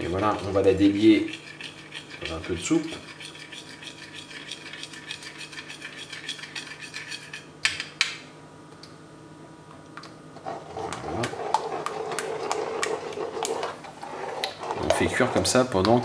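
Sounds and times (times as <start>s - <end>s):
ladle scraping in a pot: 0.4s - 7.5s, 10.4s - 16.0s.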